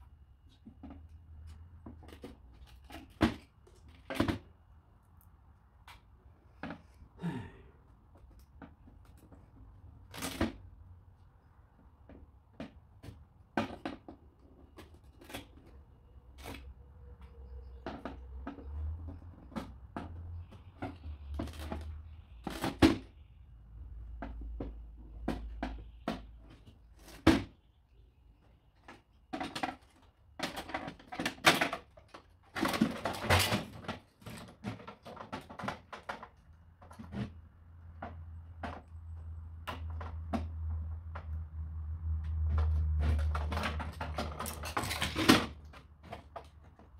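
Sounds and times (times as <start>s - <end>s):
plastic and metal parts clattering: 0.5s - 4.6s, 8.2s - 10.7s, 12.1s - 16.8s, 17.7s - 23.1s, 28.7s - 38.9s, 42.5s - 46.9s.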